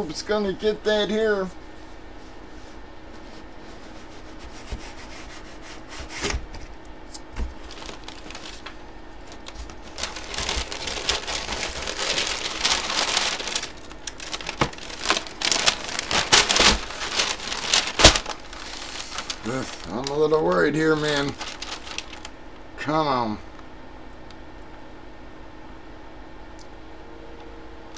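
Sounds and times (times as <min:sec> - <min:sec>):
packing paper crinkling: 0:07.4 - 0:22.6.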